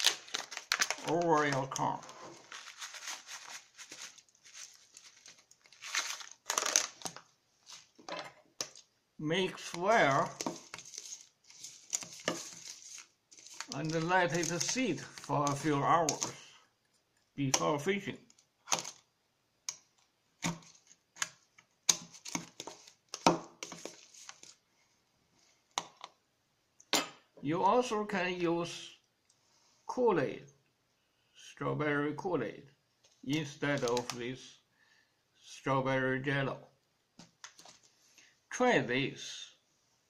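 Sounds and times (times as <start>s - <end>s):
powder packet crinkling: 0.0s - 8.0s, 9.5s - 16.4s, 20.4s - 24.6s, 33.6s - 34.2s
knife stirring wet corn in tub: 9.4s - 16.6s, 20.4s - 24.5s.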